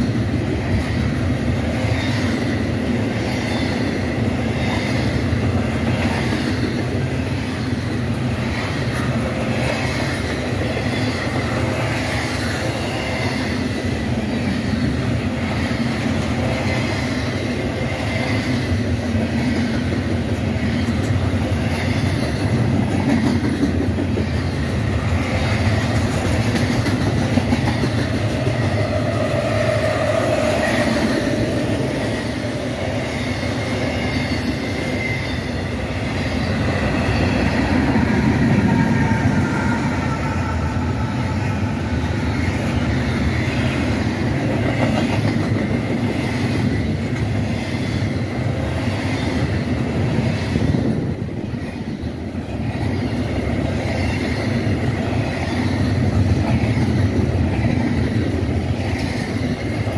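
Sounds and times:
freight train wheels rumbling: 0:00.0 - 0:59.9
high wheel squeals: 0:33.0 - 0:41.6.

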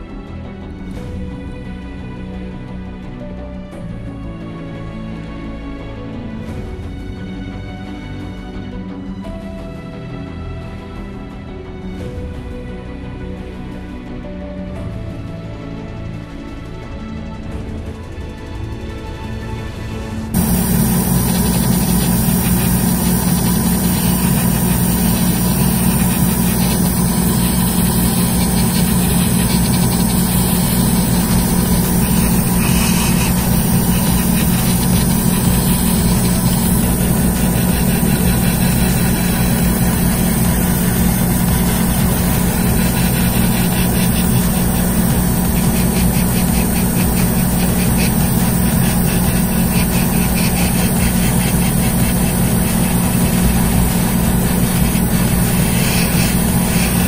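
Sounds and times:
airbrush motor hum: 0:20.4 - 0:57.0
even hiss: 0:20.4 - 0:57.0.

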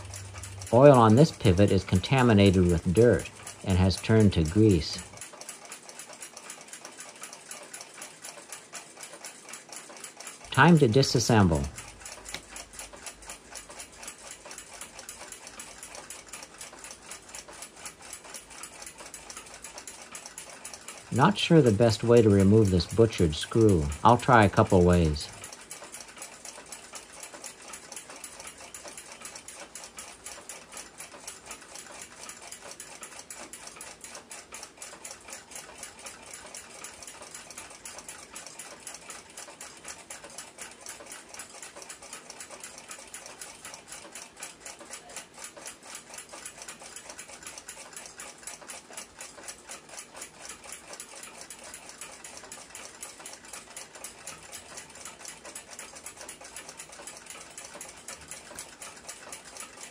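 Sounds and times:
clock ticking rapidly: 0:00.0 - 0:59.9.

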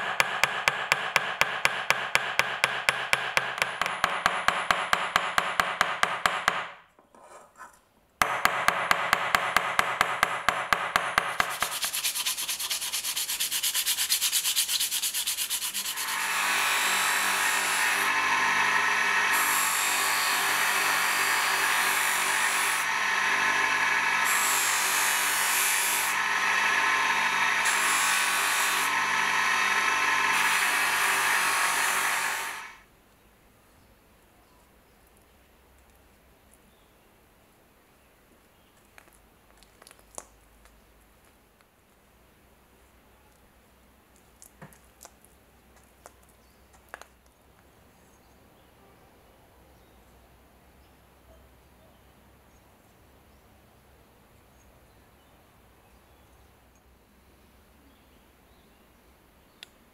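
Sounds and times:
hammer tapping rivet on anvil: 0:00.0 - 0:06.7
wood rubbing on buffing wheel: 0:11.4 - 0:32.8
bench buffing wheel motor: 0:15.8 - 0:32.8.

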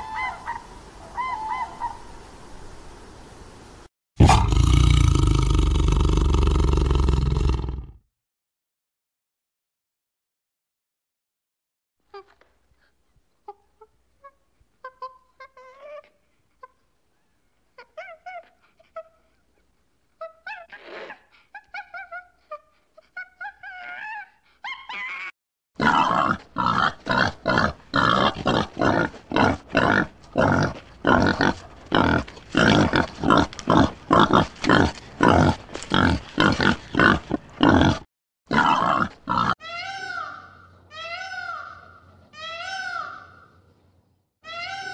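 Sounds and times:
warthog grunting: 0:04.2 - 0:08.0, 0:25.8 - 0:39.6
monkeys chirping and squeaking: 0:14.2 - 0:16.8, 0:17.8 - 0:19.1, 0:20.2 - 0:25.3, 0:39.6 - 0:43.4, 0:44.5 - 0:44.9.

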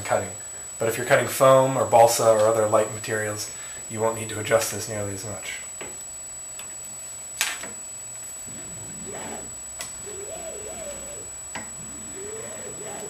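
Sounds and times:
low wavering sound: 0:08.4 - 0:13.0.

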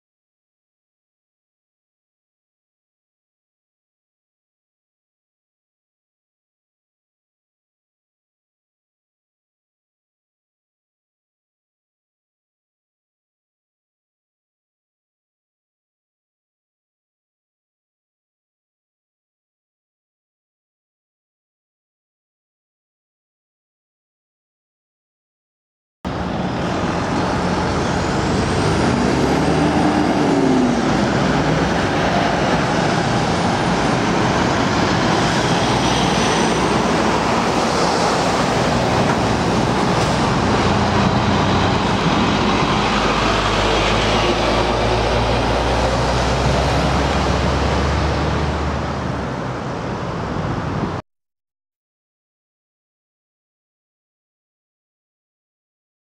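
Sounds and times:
deep engine rumble: 0:26.1 - 0:51.0
trucks driving past: 0:26.1 - 0:51.0.

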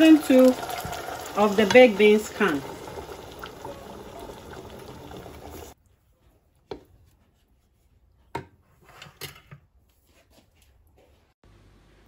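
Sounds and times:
beans sizzling in hot pot: 0:00.0 - 0:05.8.

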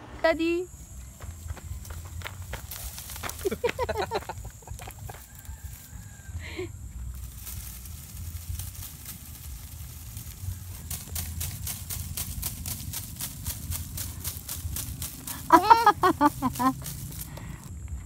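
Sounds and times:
wind rumbling on microphone: 0:00.0 - 0:18.0
crisp crackling clicks: 0:07.2 - 0:17.7.

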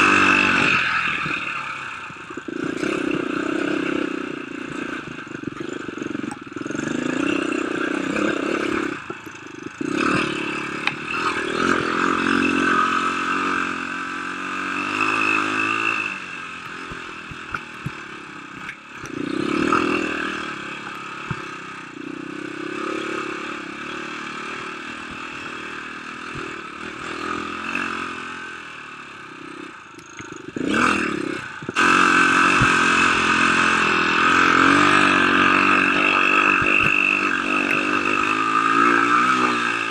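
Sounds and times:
dirt bike engine revving: 0:00.0 - 0:39.9
bike knocks and rattles: 0:14.8 - 0:20.2, 0:34.6 - 0:39.6.

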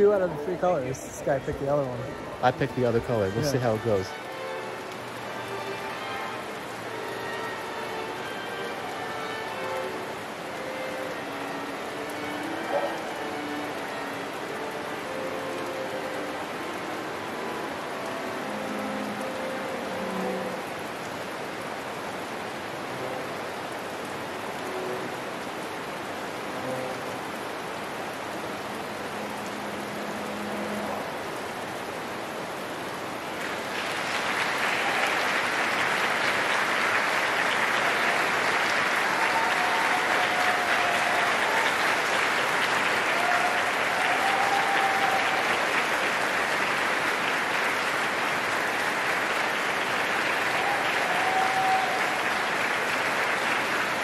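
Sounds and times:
audience applause: 0:00.0 - 0:20.6, 0:33.4 - 0:54.0
held string quartet notes: 0:00.0 - 0:20.9
heavy rain drumming on roof: 0:00.0 - 0:54.0.

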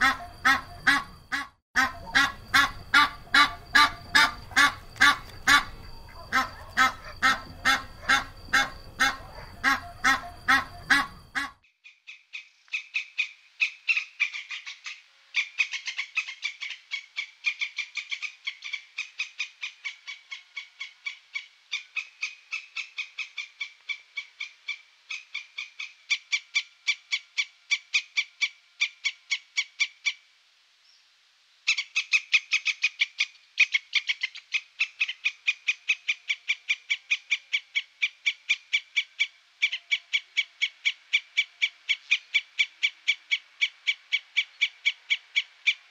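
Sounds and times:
goose honking: 0:00.0 - 0:11.6
squirrel chirping rapidly: 0:00.0 - 0:30.2, 0:31.7 - 0:45.9.

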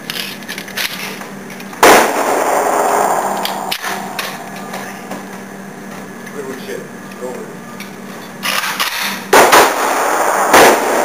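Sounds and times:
handgun shot with echo: 0:01.8 - 0:05.3.

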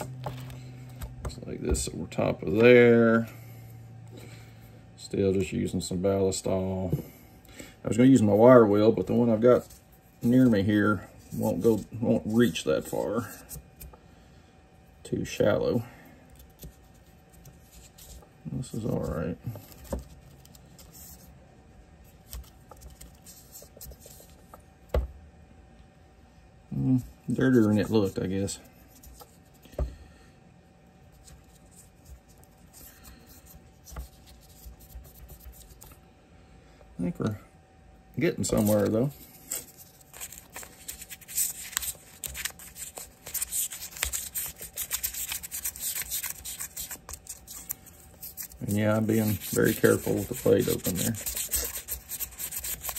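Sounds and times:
light scratching: 0:38.4 - 0:52.9
scrubbing knife handle: 0:48.6 - 0:52.9.

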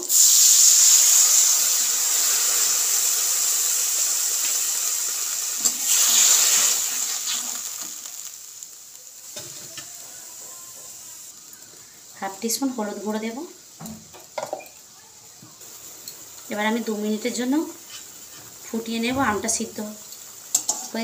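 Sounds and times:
oil sizzling: 0:00.0 - 0:21.0
spatula stirring pan: 0:09.2 - 0:12.9, 0:15.6 - 0:21.0.

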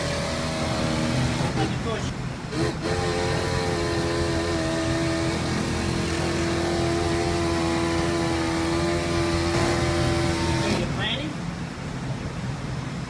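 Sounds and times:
power cutter whining: 0:00.0 - 0:10.9.

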